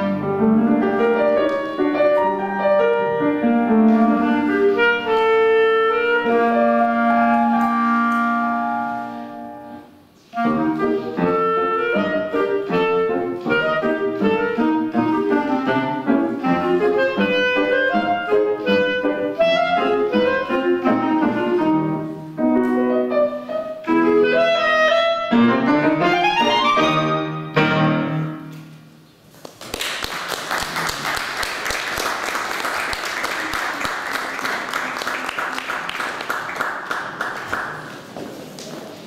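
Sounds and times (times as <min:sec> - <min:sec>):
clarinet and piano playing: 0:00.0 - 0:28.9
audience applauding: 0:29.4 - 0:38.2.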